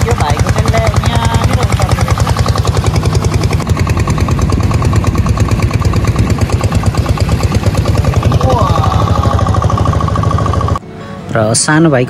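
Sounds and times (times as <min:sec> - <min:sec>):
outboard motor putt-putt: 0:00.0 - 0:10.8.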